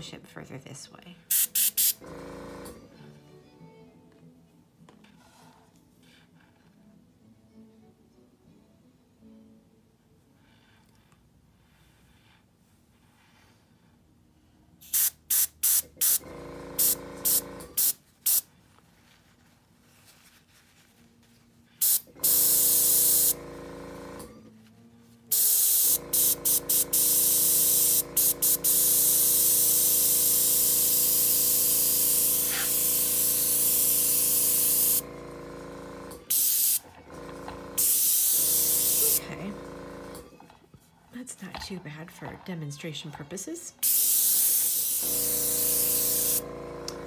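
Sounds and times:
airbrush hissing air: 1.3 - 2.0, 16.8 - 18.5, 21.8 - 23.4, 25.3 - 35.0, 36.3 - 36.8, 37.8 - 39.2, 43.8 - 46.4
air compressor humming: 1.3 - 2.9, 14.9 - 18.5, 21.8 - 24.5, 25.3 - 40.5, 43.8 - 47.0.

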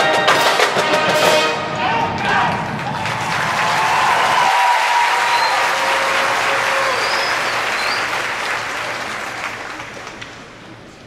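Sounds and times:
marching band final chord: 0.0 - 4.6
crowd applauding and cheering: 1.8 - 10.5
whistles: 4.3 - 9.2.

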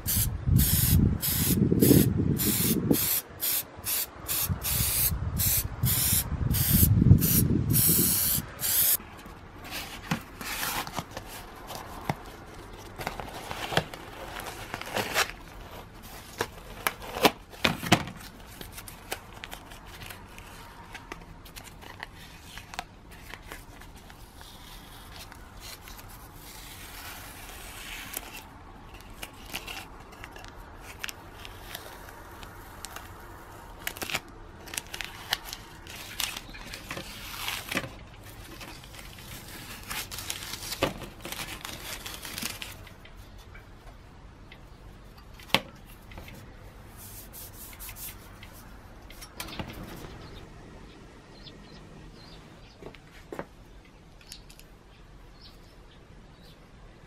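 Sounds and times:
masking tape peeling: 0.0 - 9.0, 23.4 - 43.0
spray can bursts: 0.0 - 9.0.

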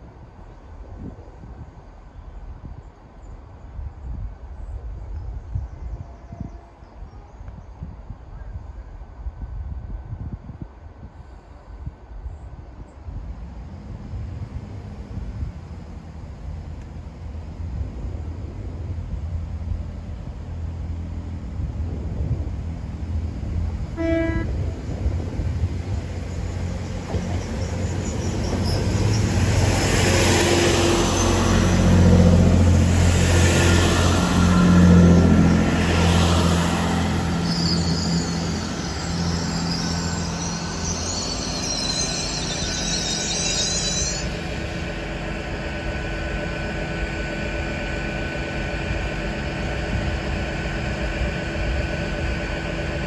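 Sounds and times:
passing diesel train: 0.0 - 53.0
diesel train rumbling: 7.9 - 53.0
steady engine drone: 14.0 - 53.0
high brake squeal: 26.2 - 32.3, 33.5 - 45.6.

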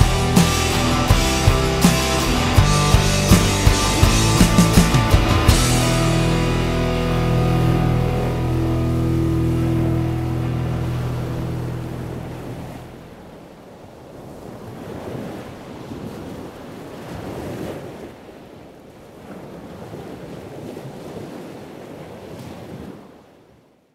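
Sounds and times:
background music: 0.0 - 13.2
sea waves washing in: 0.0 - 23.6.

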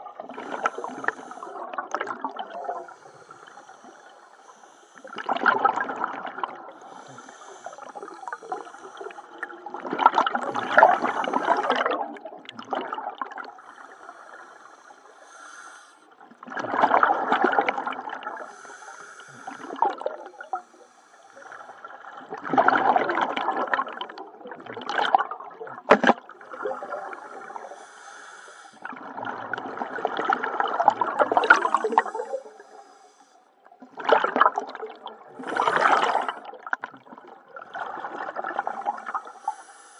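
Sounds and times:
bubbles rushing out underwater: 0.0 - 3.0, 5.1 - 6.8, 9.3 - 13.6, 16.2 - 18.5, 19.6 - 20.5, 21.9 - 27.6, 28.8 - 32.4, 33.7 - 39.3
breathing through a regulator: 0.4 - 5.3, 6.6 - 9.6, 10.6 - 12.0, 13.4 - 16.2, 18.2 - 22.0, 26.9 - 29.0, 31.3 - 33.7, 35.4 - 36.6, 39.0 - 39.9.

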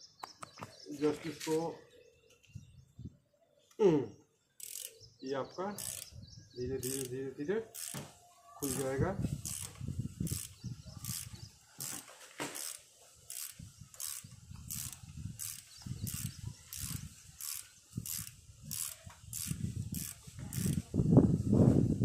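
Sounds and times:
ratchet wrench clicking: 4.6 - 5.0, 5.8 - 6.1, 6.8 - 8.0, 8.6 - 12.0, 12.6 - 20.8.

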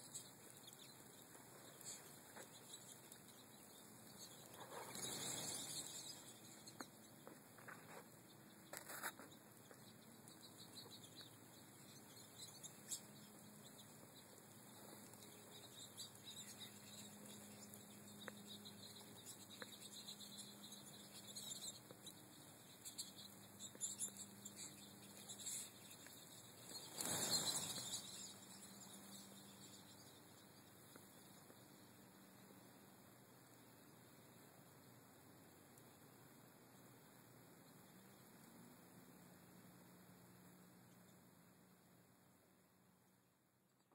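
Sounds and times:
birds whirring wings: 0.0 - 31.7
faint high bird twitters: 0.0 - 31.8.

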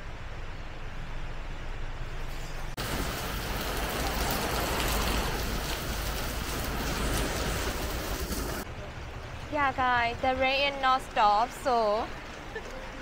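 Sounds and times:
heavy rain on wet pavement: 2.8 - 8.7.

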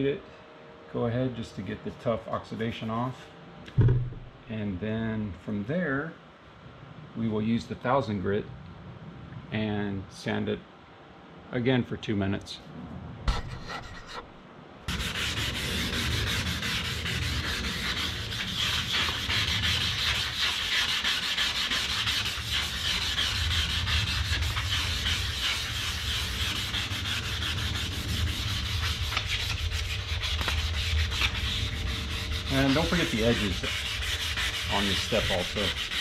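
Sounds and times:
sandpaper scrubbing plastic: 14.9 - 36.0.

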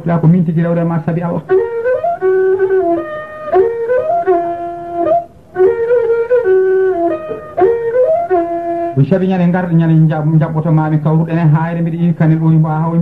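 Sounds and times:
flute melody: 0.0 - 9.8.

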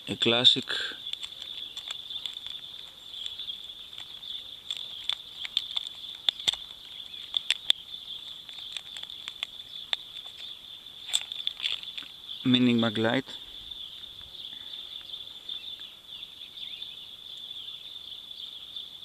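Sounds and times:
high-pitched insect chirring: 1.0 - 14.4.

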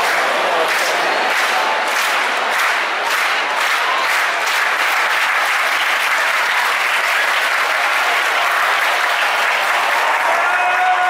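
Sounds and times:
crowd applauding: 0.0 - 11.0.

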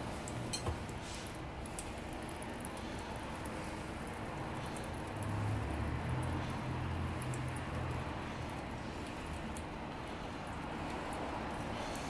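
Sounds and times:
water trickling through coffee brewer: 0.0 - 12.0.

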